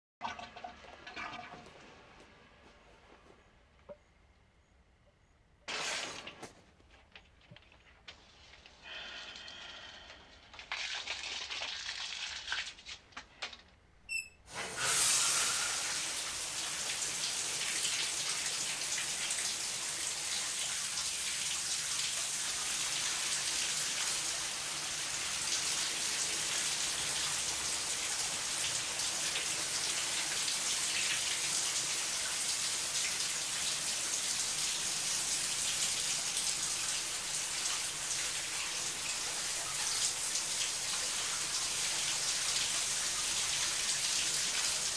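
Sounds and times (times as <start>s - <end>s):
shower spray on tiles: 8.2s - 13.2s, 14.5s - 44.9s.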